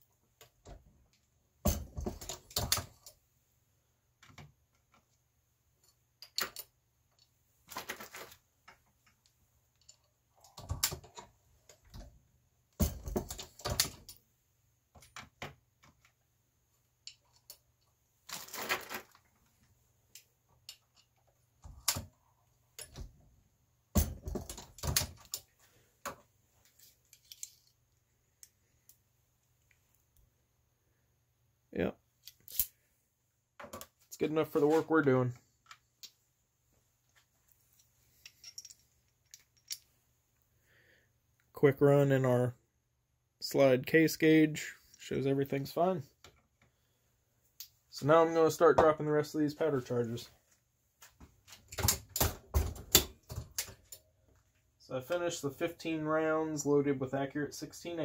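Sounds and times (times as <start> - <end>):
cartridges being handled: 5.8 - 12.1, 24.0 - 29.0, 32.2 - 32.8, 37.1 - 40.0.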